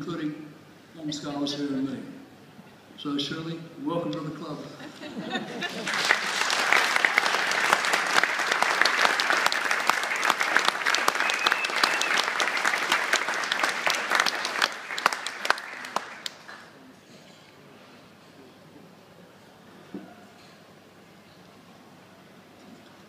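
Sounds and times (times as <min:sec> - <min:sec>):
audience applauding: 0:05.5 - 0:16.8.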